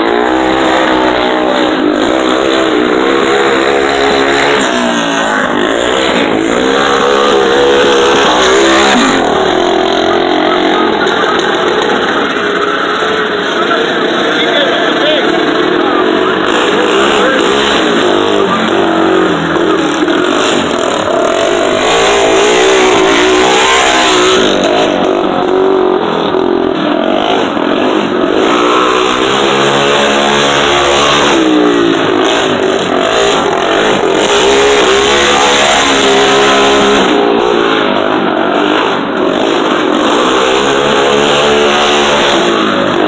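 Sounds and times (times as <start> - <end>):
lawn tractor engines racing: 0.0 - 43.0.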